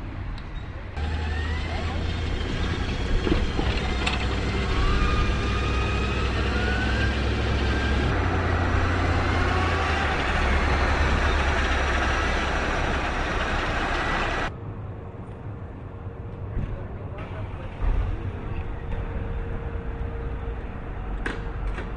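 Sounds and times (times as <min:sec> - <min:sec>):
road and wind noise: 0:00.0 - 0:21.9
electric motorcycle motor whine: 0:01.0 - 0:14.5.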